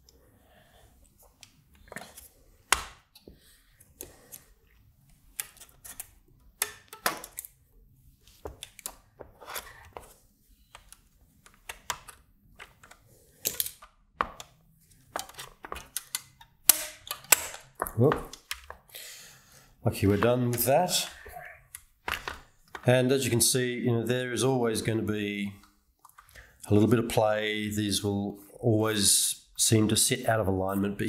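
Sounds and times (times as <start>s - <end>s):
clicks and knocks of handled circuit board: 10.7s - 18.9s.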